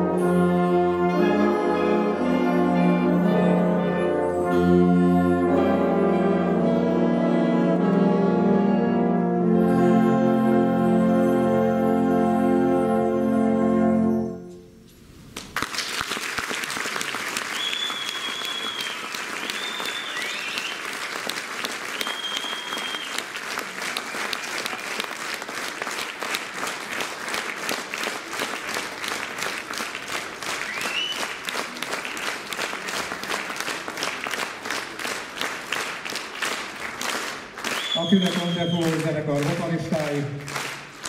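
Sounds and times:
audience applauding: 0:15.4 - 0:41.0
rhythmic clapping: 0:15.4 - 0:41.0
short whistles: 0:17.5 - 0:20.8, 0:21.9 - 0:23.2, 0:30.7 - 0:31.3, 0:37.8 - 0:38.8.

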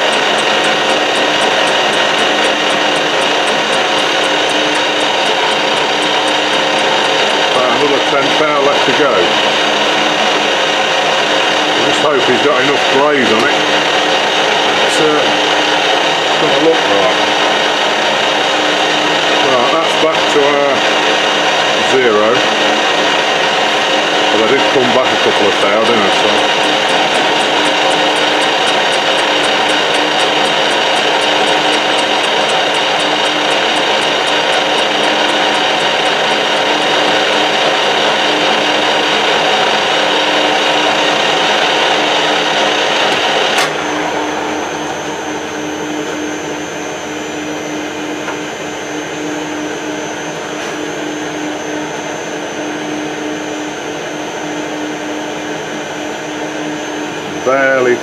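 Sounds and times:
sharp machine click: 0:00.0 - 0:07.6, 0:25.7 - 0:37.6
metal lathe running: 0:00.0 - 0:49.7.

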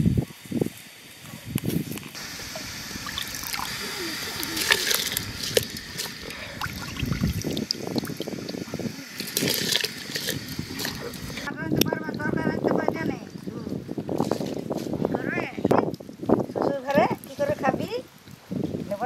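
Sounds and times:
water trickling: 0:02.2 - 0:12.5
hands sloshing rice in water: 0:03.0 - 0:11.5.

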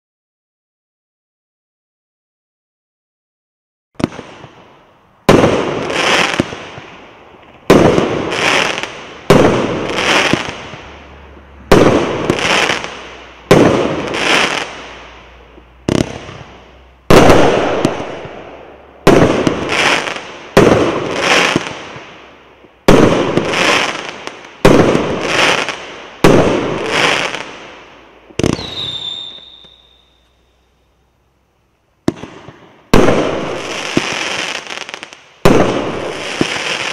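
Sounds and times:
fireworks bangs with crackling: 0:04.0 - 0:30.7, 0:32.0 - 0:36.9
falling firework whistle: 0:28.4 - 0:30.9.

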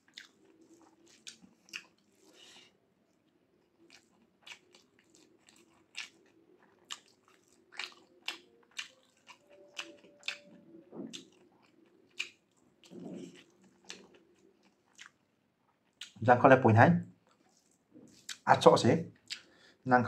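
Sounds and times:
man chewing with wet smacks: 0:00.0 - 0:16.2, 0:17.2 - 0:18.5, 0:19.1 - 0:19.7.

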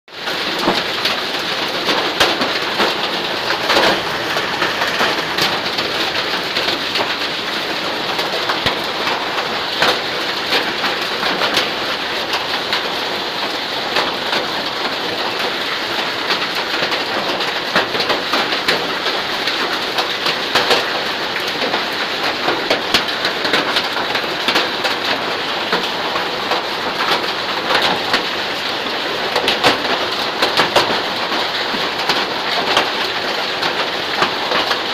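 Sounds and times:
hail and rain on bare ground: 0:00.1 - 0:34.9.

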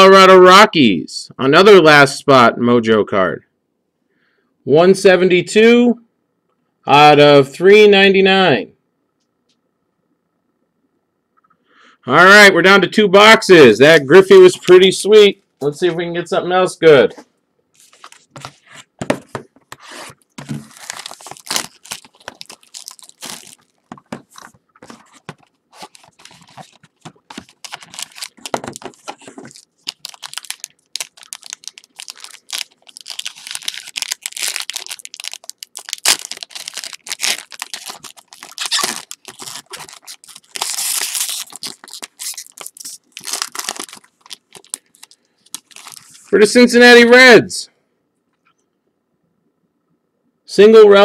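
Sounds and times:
plastic wrapping being torn and crinkled: 0:20.1 - 0:46.3.

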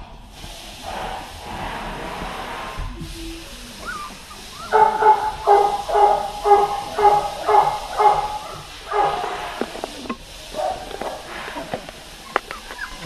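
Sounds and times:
puppy barking: 0:03.8 - 0:09.6, 0:10.5 - 0:11.3, 0:12.2 - 0:13.0.

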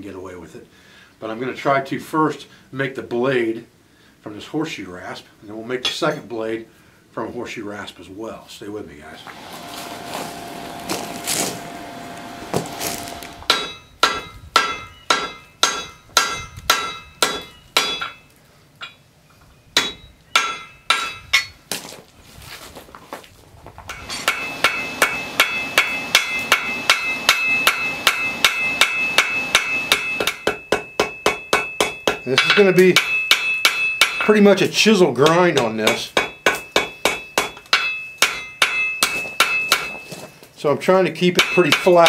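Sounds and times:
hammer striking hot metal on anvil: 0:13.0 - 0:18.2, 0:19.8 - 0:21.5, 0:24.0 - 0:34.3, 0:35.2 - 0:40.0, 0:41.4 - 0:42.0.

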